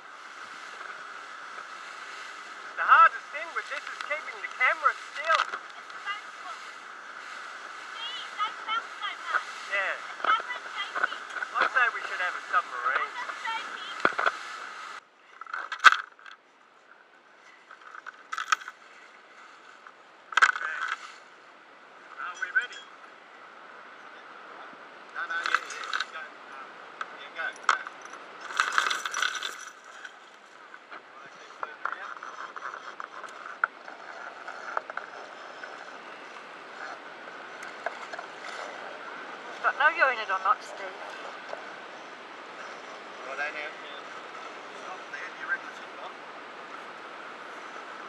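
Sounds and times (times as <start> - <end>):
anchor winch running: 27.6 - 30.3
wetsuit scraping against boat: 32.0 - 39.9.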